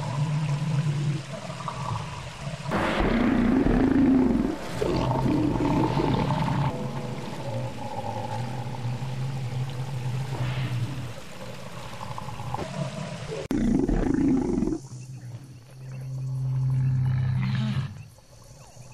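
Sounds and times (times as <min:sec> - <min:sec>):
dinosaur roars: 0:02.7 - 0:14.8.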